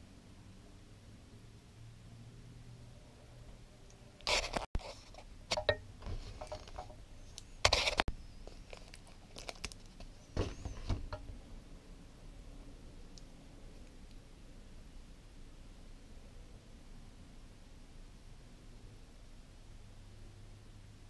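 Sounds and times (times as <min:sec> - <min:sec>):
fingers rustling and tapping: 0:05.5 - 0:11.3
plastic blister pack crinkling: 0:07.4 - 0:10.2.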